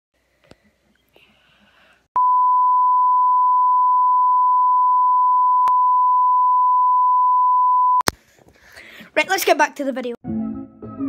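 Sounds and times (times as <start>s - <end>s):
steady test tone beep: 2.2s - 8.0s.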